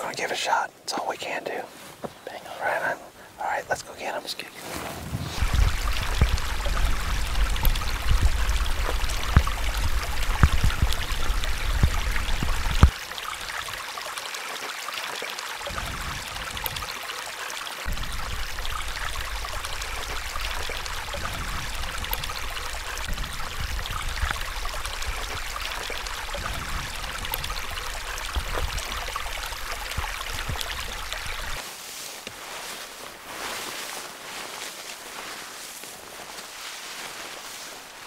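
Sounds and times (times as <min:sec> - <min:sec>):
creek trickling over rocks: 0:00.0 - 0:38.0
low rumble with knocks: 0:05.2 - 0:13.0, 0:15.7 - 0:16.9, 0:17.9 - 0:31.6.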